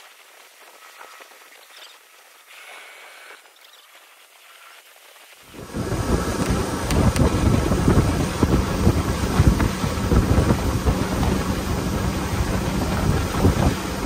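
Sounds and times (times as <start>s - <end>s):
rushing water and spray: 0.0s - 14.0s
wind buffeting microphone: 5.5s - 14.0s.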